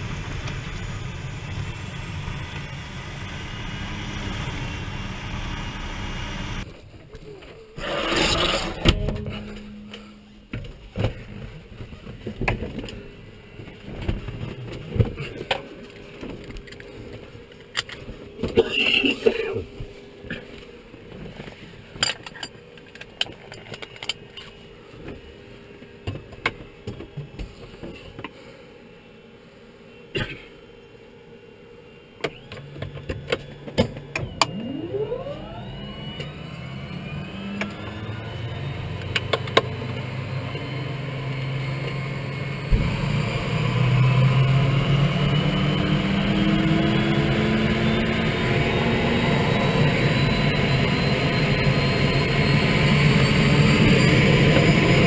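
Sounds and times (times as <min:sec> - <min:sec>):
turboprop engine starting: 0:00.0 - 0:15.6, 0:32.2 - 0:55.0.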